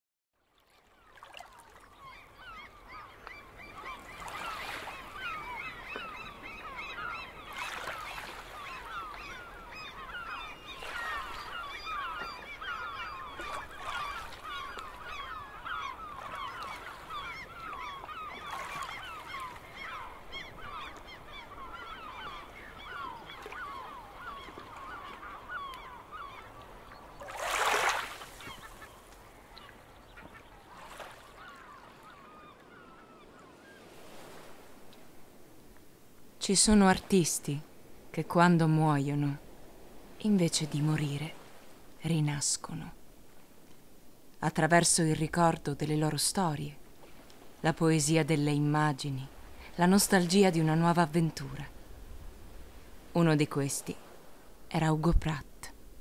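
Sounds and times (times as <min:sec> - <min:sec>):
birds squawking and chirping: 0:01.9 - 0:34.5.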